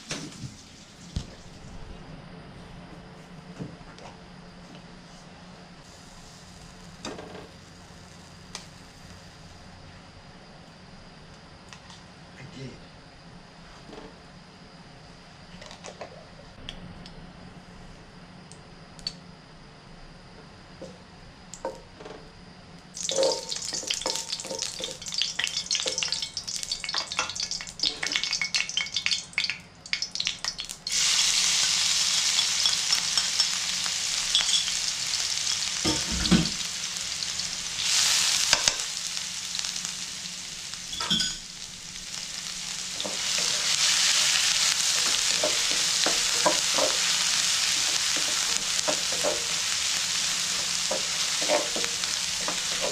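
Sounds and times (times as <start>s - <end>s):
fat sizzling in a frying pan: 0.0s - 1.7s, 5.8s - 9.8s, 22.9s - 52.9s.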